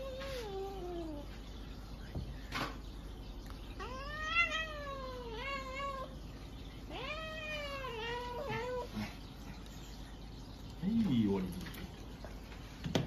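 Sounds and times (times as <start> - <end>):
cat meowing: 3.8 - 6.1, 6.9 - 9.0.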